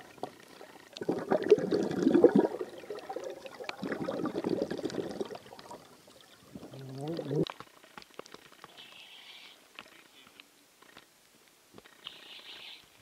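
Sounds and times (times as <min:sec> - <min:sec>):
water sloshing and gurgling: 0:00.0 - 0:08.6.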